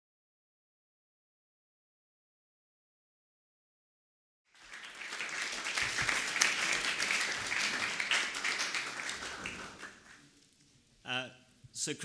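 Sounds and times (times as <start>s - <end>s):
audience applauding: 4.5s - 10.3s.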